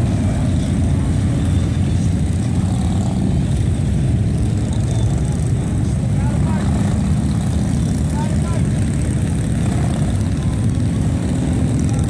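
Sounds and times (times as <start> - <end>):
motorcycles riding past slowly: 0.0 - 12.0.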